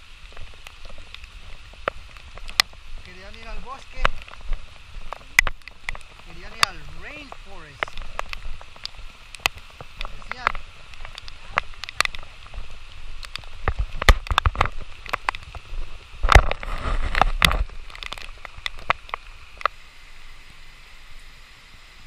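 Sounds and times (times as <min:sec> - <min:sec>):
poncho rubbing on microphone: 0:16.5 - 0:17.7.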